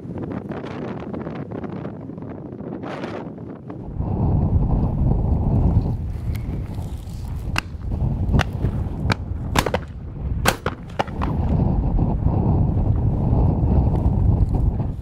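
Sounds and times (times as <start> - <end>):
wind buffeting microphone: 0.0 - 15.0
shotgun shots: 8.4 - 11.5.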